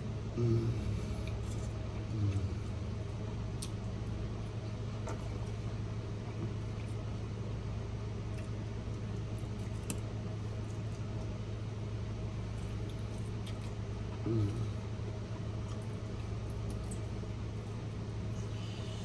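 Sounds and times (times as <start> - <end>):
steady low hum: 0.0 - 19.0
person chewing: 3.6 - 3.8, 12.5 - 14.8.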